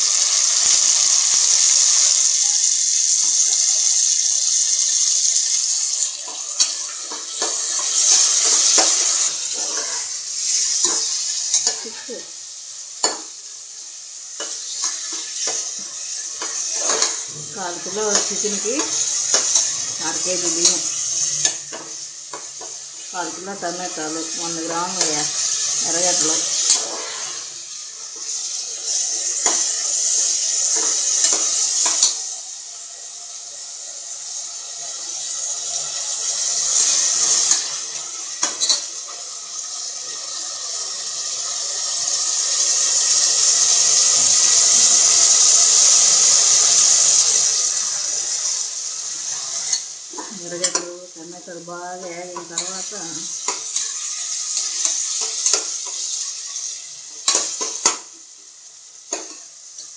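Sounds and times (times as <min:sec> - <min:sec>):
vegetables sizzling in a pot: 0:00.0 - 0:59.9
metal spoon scraping a pot: 0:06.3 - 0:11.8, 0:16.4 - 0:17.3, 0:26.1 - 0:27.5, 0:49.3 - 0:49.9.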